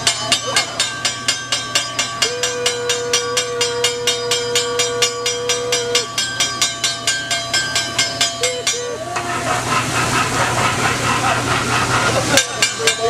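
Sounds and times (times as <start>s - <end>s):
loud sizzling hiss: 0.0s - 13.0s
metal spatulas clacking on griddle: 6.2s - 13.0s.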